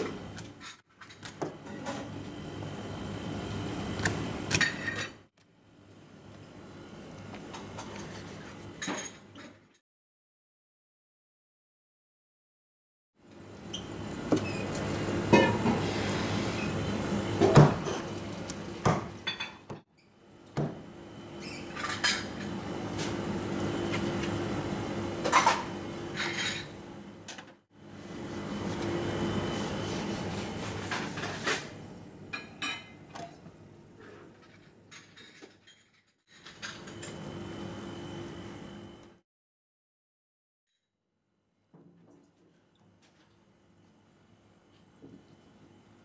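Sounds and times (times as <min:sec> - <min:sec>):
kitchen hum: 0:00.0 - 0:09.8, 0:13.2 - 0:39.2.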